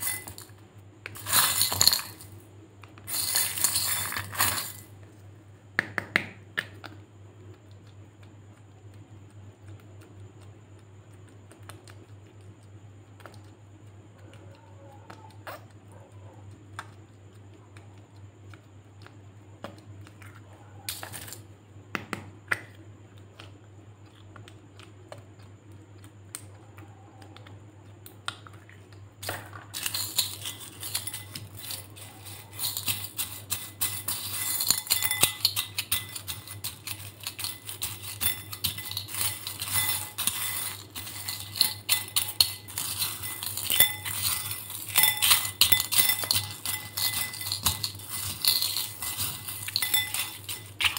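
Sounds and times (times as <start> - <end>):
beads clinking against glass: 0.0 - 0.5, 1.2 - 2.4, 3.1 - 4.9, 29.2 - 50.9.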